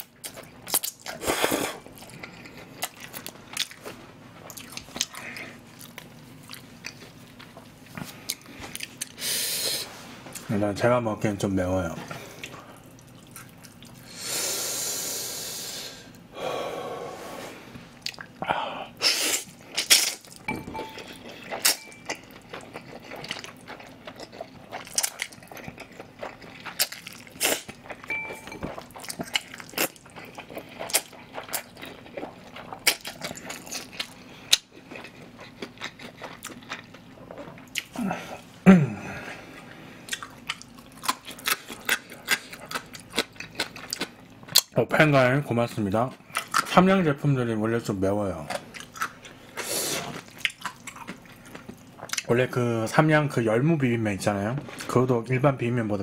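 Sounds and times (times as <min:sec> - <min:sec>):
wet chewing with lip smacks: 0:19.8 - 0:37.9, 0:50.1 - 0:52.3.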